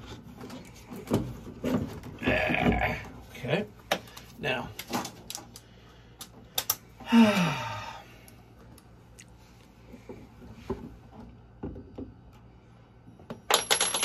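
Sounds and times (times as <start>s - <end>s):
person sighing: 7.0s - 8.3s.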